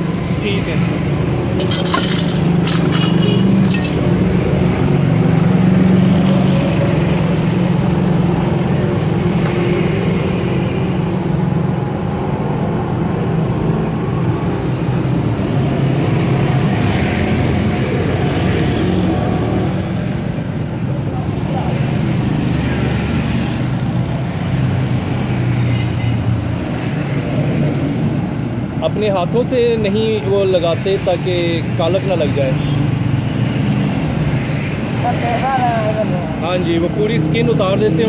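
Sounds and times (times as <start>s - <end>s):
street traffic engine hum: 0.0s - 38.0s.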